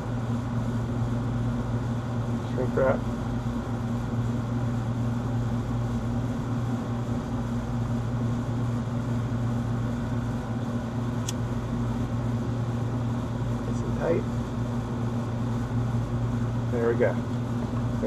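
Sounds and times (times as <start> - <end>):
low machine hum: 0.0 - 18.0
sharp click: 11.2 - 11.4.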